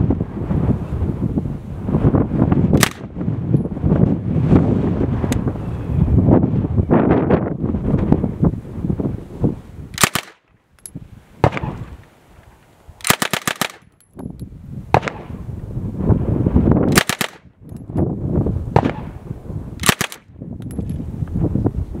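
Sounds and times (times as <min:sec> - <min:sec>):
submachine gun firing bursts: 0:02.8 - 0:03.0, 0:10.0 - 0:10.4, 0:13.0 - 0:13.9, 0:16.9 - 0:17.4, 0:19.8 - 0:20.3.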